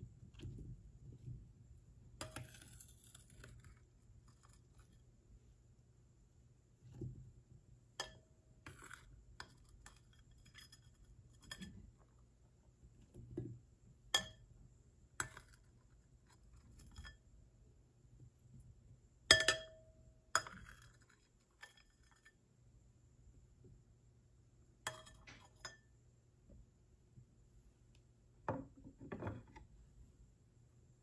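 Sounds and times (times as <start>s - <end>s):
metal spoon clinking on glass bowl: 14.2s - 14.5s, 19.3s - 19.8s, 20.4s - 21.0s, 24.9s - 25.9s.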